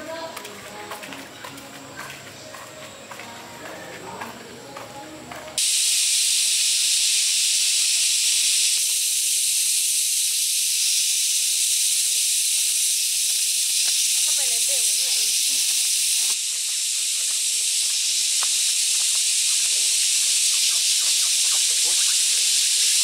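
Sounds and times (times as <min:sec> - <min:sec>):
loud high hiss: 0:05.6 - 0:23.0.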